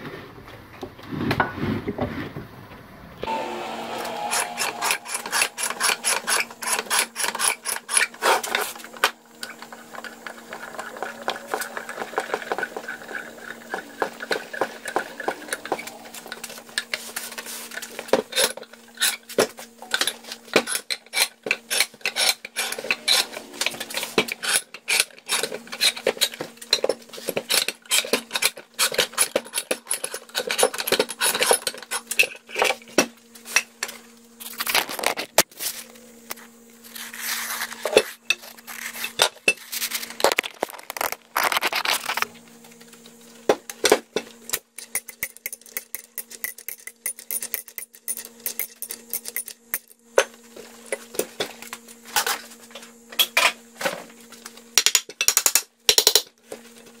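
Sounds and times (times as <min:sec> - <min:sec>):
bench vise clicking and scraping: 0:04.3 - 0:08.7.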